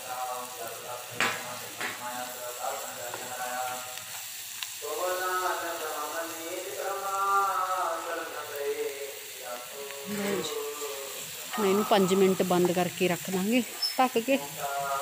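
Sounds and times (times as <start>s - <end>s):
vegetables sizzling in a pan: 0.0s - 15.0s
spatula knocking on pan: 1.2s - 2.0s
background voice: 4.8s - 15.0s.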